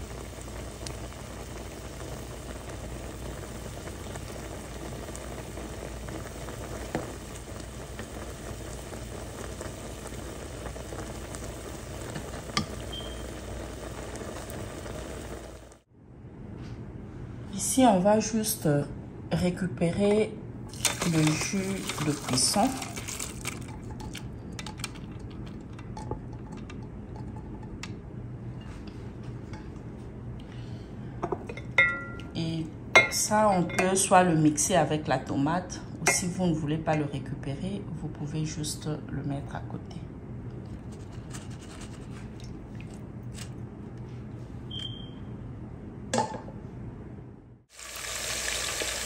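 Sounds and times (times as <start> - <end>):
steady low hum: 21.4 - 47.7.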